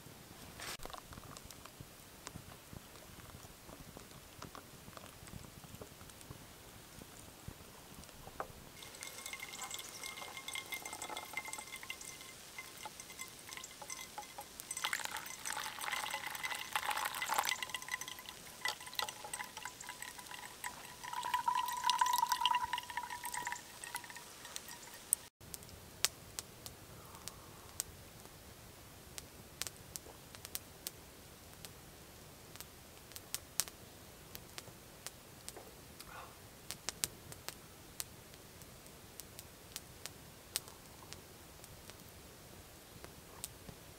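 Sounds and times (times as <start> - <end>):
campfire crackling: 0.5 - 43.9
water trickling into coffee filter: 8.8 - 25.3.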